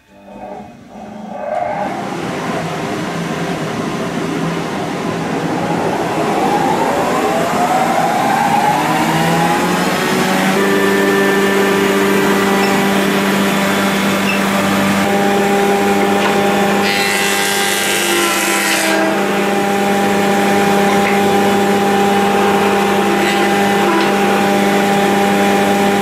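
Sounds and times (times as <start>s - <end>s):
thickness planer humming: 0.0s - 26.0s
planer hissing through wood: 10.4s - 26.0s.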